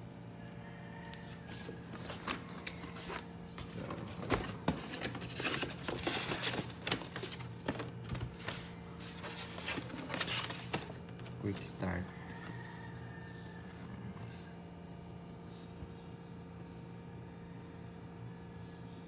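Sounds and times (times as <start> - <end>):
cardboard and paper rustling: 1.3 - 12.9.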